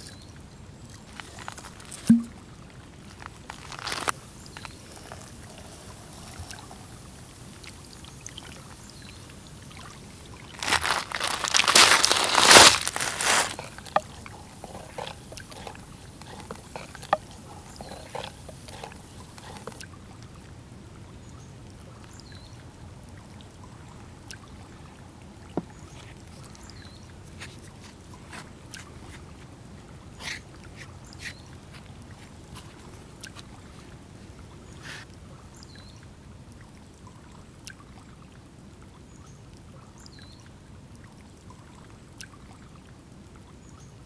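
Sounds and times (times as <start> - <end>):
liquid pouring into clay pot: 1.4 - 2.3.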